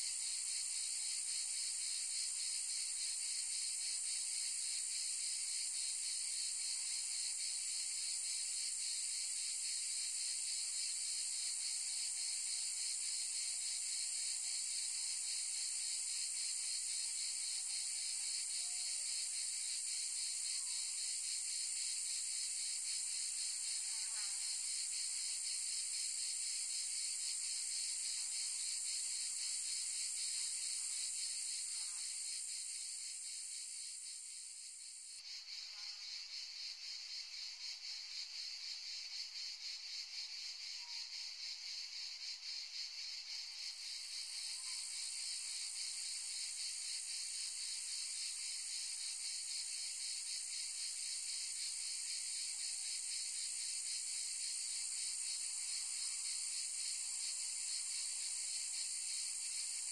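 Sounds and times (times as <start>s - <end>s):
insects buzzing: 15.6s - 40.9s.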